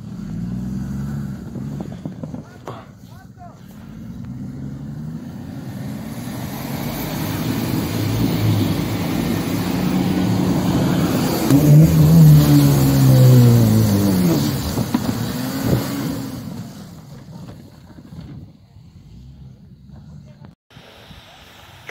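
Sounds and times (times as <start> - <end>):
suv engine revving: 0.0 - 2.9, 3.6 - 18.3
tyres spinning in snow: 3.4 - 18.7.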